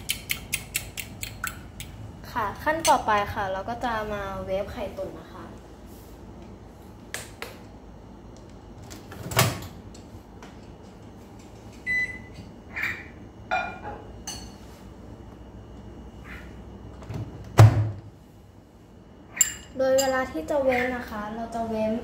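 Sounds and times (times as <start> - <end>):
microwave door shutting thump: 17.5 - 18.0.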